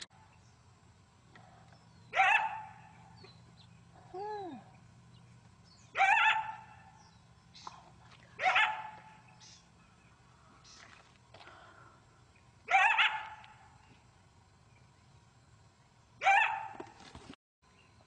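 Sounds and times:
coyote barking: 0:02.1 - 0:03.3, 0:05.9 - 0:07.1, 0:08.4 - 0:09.4, 0:12.6 - 0:13.7, 0:16.2 - 0:16.8.

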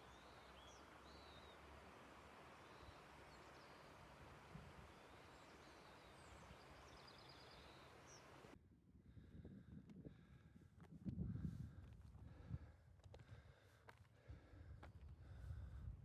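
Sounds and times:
bird chirps: 0:00.0 - 0:04.2, 0:04.8 - 0:08.4
faint outdoor hiss: 0:00.0 - 0:08.6.

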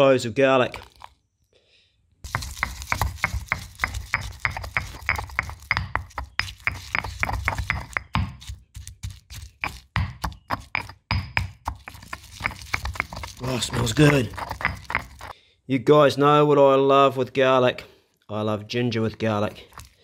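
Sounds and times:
stone pestle pounding in mortar: 0:02.3 - 0:15.3.

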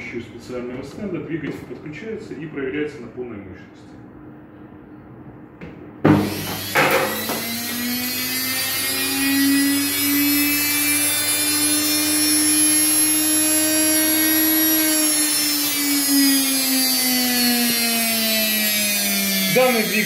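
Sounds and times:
electric motor whine: 0:06.1 - 0:20.0.

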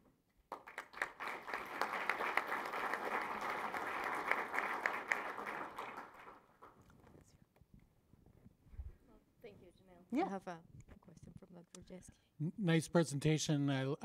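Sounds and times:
audience applauding: 0:00.5 - 0:06.9.

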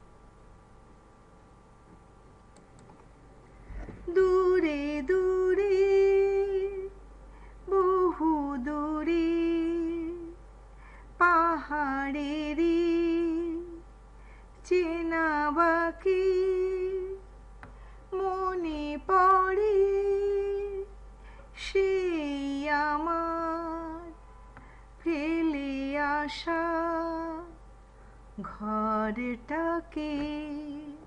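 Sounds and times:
faint steady hum: 0:00.0 - 0:31.0
woman singing wordless melody: 0:04.0 - 0:10.5, 0:11.2 - 0:13.9, 0:14.6 - 0:17.3, 0:18.1 - 0:27.6, 0:28.4 - 0:31.0.

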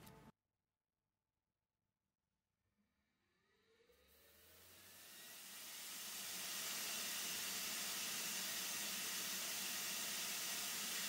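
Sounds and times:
blower air rushing hiss: 0:04.5 - 0:11.0.

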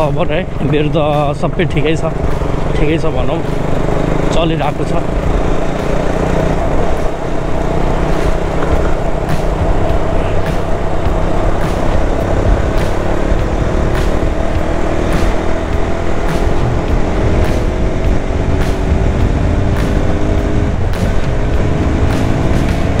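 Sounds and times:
motorcycle engine cruising: 0:00.0 - 0:23.0
wind on microphone: 0:16.6 - 0:23.0.

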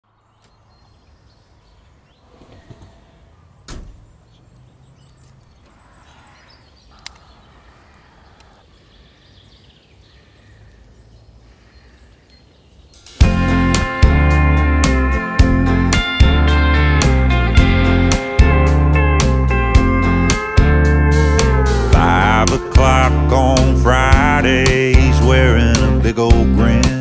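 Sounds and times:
outdoor background noise: 0:00.0 - 0:13.3
sharp door click: 0:03.7 - 0:04.1
truck door thud: 0:03.7 - 0:04.1.

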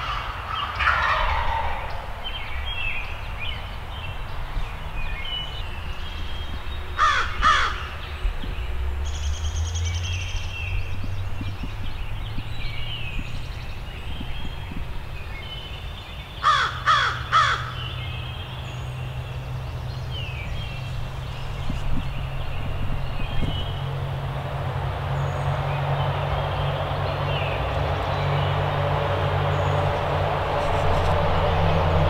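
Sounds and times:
songbirds chirping: 0:00.0 - 0:32.0
crow cawing: 0:07.0 - 0:07.9, 0:16.4 - 0:17.8.

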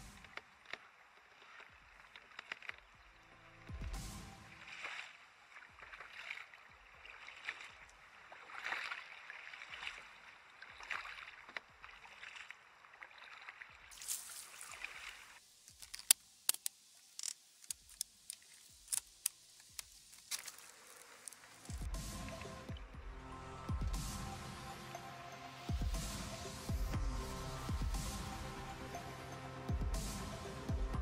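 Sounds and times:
water swishing around kayak: 0:00.0 - 0:15.4
sharp clicks and taps: 0:15.7 - 0:20.5.

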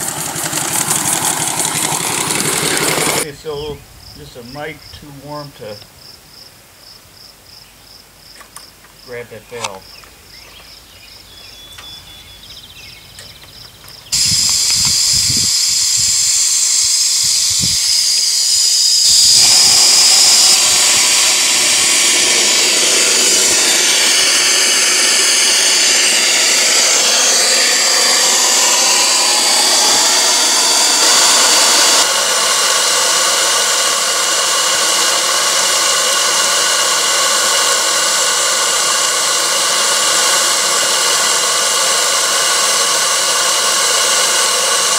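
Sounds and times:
steam hissing from valve: 0:00.0 - 0:03.6, 0:14.1 - 0:44.9.

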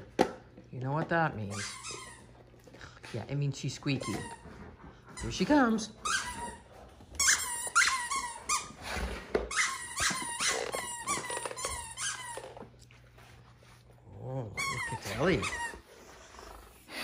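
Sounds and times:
squeaky toy squeaking: 0:01.5 - 0:02.3, 0:07.2 - 0:08.8, 0:09.5 - 0:12.6, 0:14.6 - 0:15.8.

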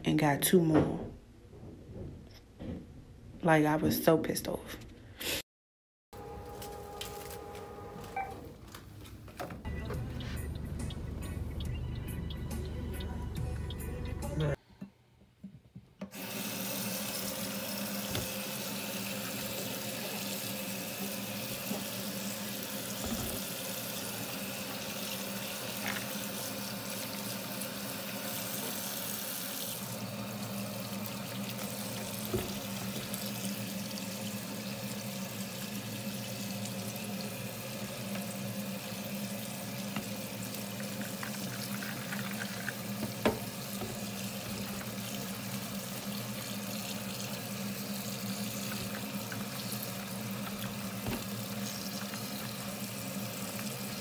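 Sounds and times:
tap water running into a sink: 0:16.1 - 0:54.0.

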